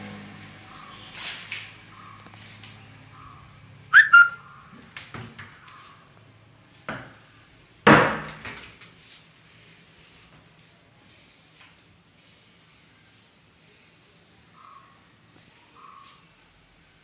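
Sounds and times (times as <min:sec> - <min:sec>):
wardrobe door squeaking: 0:04.0 - 0:04.4.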